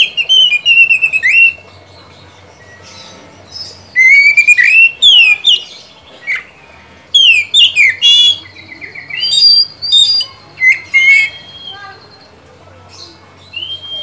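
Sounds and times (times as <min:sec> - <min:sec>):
bird singing whistled phrases: 0:00.0 - 0:01.6, 0:03.5 - 0:06.5, 0:07.1 - 0:12.4, 0:13.4 - 0:14.0.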